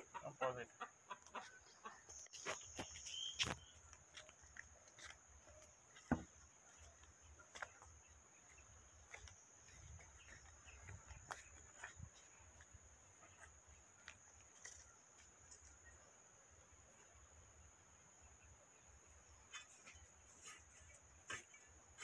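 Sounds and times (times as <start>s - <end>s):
wooden stake knocking: 6.0s - 6.4s.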